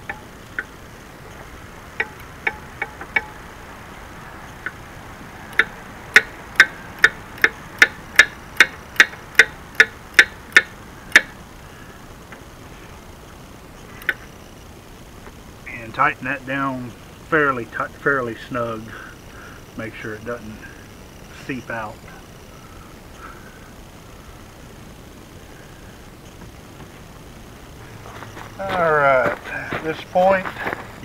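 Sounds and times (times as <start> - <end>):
ratchet wrench clicking: 2.0 - 3.4, 5.5 - 11.4.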